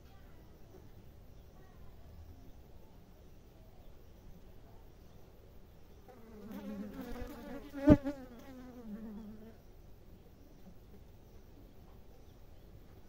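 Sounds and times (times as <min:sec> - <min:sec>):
honeybee buzzing: 0:06.1 - 0:09.6.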